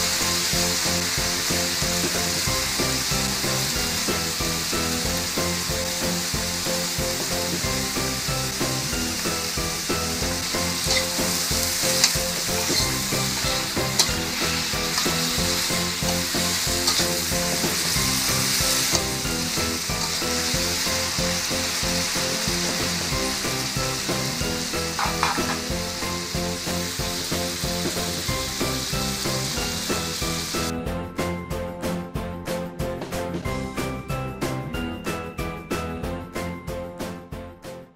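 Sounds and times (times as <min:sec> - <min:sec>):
food sizzling in a wok: 0:00.0 - 0:30.7
metal spatula scraping wok: 0:10.0 - 0:23.2, 0:24.9 - 0:25.8.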